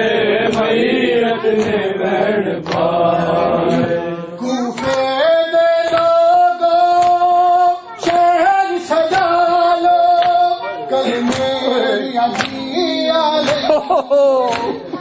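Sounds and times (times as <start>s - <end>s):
man singing a lament: 0.0s - 15.0s
men beating their chests: 8.0s - 15.0s.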